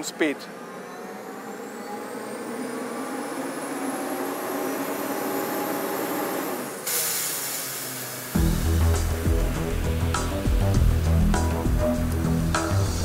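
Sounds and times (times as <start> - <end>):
compressor engine whining: 0.0 - 13.0
loud hiss of escaping air: 6.7 - 10.4
music: 8.4 - 13.0.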